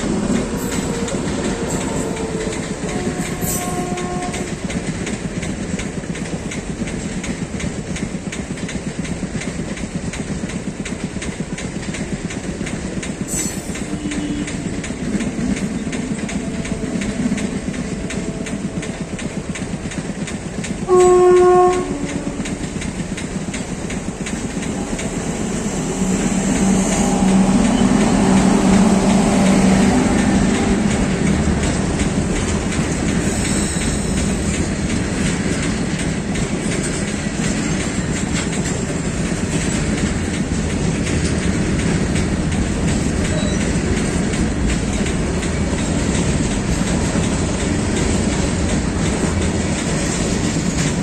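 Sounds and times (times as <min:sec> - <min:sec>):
freight locomotive passing: 0:00.0 - 0:51.0
train coaches rumbling past: 0:00.0 - 0:51.0
wheels clacking over rail joints: 0:00.0 - 0:51.0
train horn blast: 0:00.4 - 0:04.7, 0:13.5 - 0:14.9, 0:20.8 - 0:22.6, 0:25.0 - 0:32.0.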